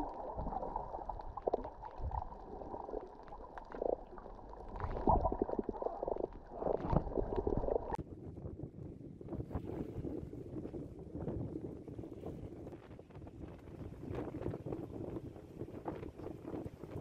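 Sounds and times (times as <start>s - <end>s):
underwater clicks and knocks: 0.0s - 8.0s
underwater rumbling and gurgling: 0.0s - 17.0s.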